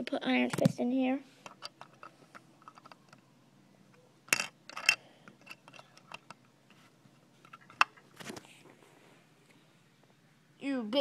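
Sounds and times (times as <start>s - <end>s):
plastic bricks clicking: 1.5s - 3.2s, 4.3s - 6.4s.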